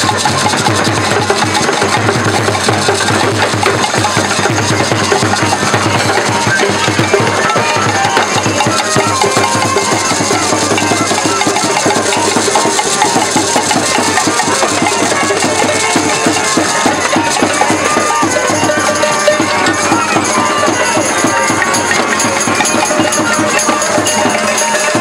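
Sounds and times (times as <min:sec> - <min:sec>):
drum struck with stick: 0:00.0 - 0:25.0
gourd shaker rattling: 0:00.0 - 0:25.0.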